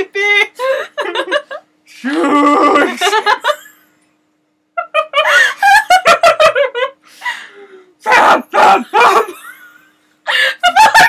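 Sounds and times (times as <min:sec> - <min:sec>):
people laughing and giggling: 0:04.8 - 0:07.0, 0:10.4 - 0:11.0.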